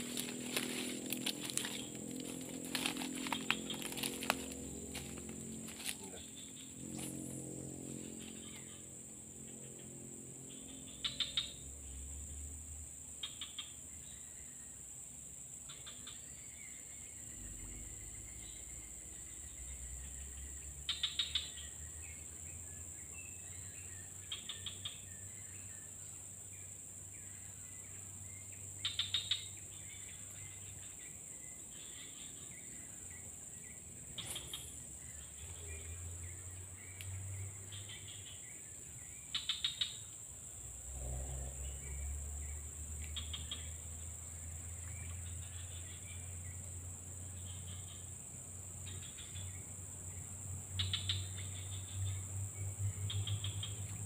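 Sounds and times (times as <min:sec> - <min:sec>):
high-pitched insect buzz: 0:00.0 - 0:14.2
rapid insect trills: 0:00.0 - 0:54.0.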